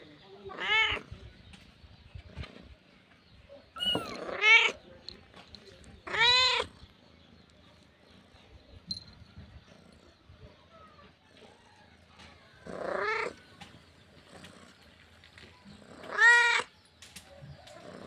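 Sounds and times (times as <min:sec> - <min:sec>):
cat meowing: 0:00.5 - 0:01.0, 0:03.8 - 0:04.8, 0:06.0 - 0:06.7.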